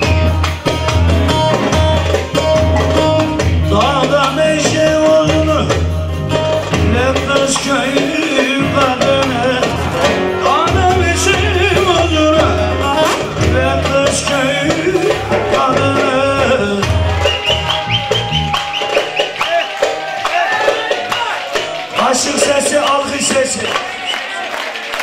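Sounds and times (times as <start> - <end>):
man singing a folk song: 3.0 - 17.4.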